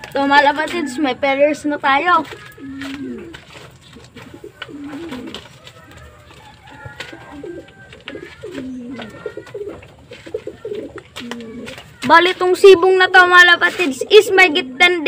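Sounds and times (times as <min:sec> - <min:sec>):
pigeons cooing: 0:00.0 - 0:13.0, 0:13.6 - 0:15.0.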